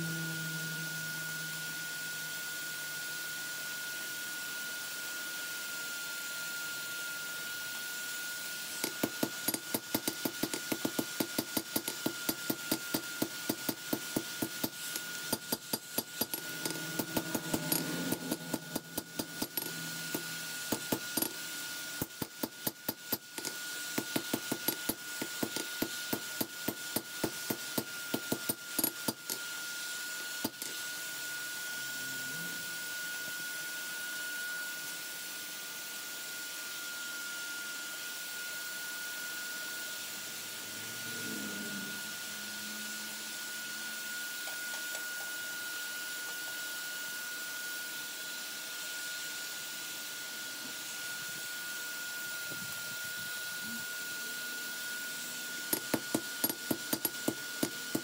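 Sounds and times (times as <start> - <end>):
hammer striking steel on anvil: 8.8 - 29.4.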